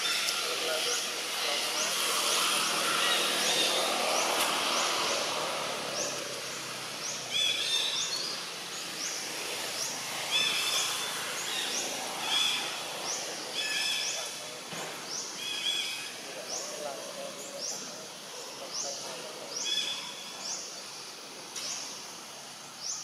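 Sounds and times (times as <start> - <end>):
loud multi-pitched bird call: 0.0 - 6.3
outdoor background noise: 0.0 - 23.0.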